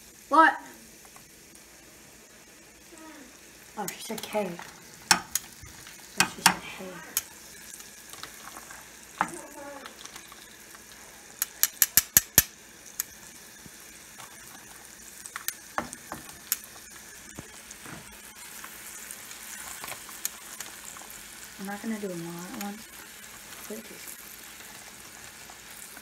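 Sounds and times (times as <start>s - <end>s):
meat sizzling in hot oil: 0.0s - 26.0s
metal tongs clicking against pan: 5.1s - 5.5s, 6.2s - 7.3s, 11.4s - 13.1s.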